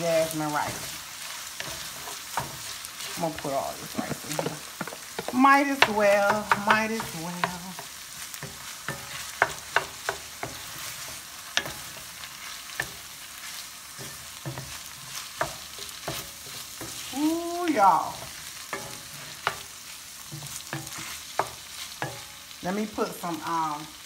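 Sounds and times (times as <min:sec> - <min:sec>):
rice sizzling in skillet: 0:00.0 - 0:24.0
spoon knocking on pan: 0:03.9 - 0:12.1, 0:13.9 - 0:17.1, 0:18.1 - 0:19.7, 0:20.3 - 0:22.4.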